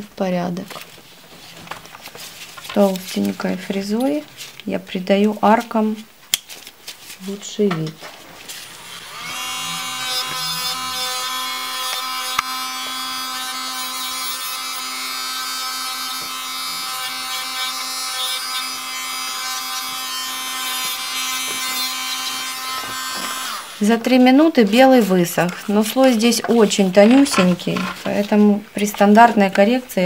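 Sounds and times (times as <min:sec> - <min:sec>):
electric nail drill whining: 0:08.6 - 0:24.0.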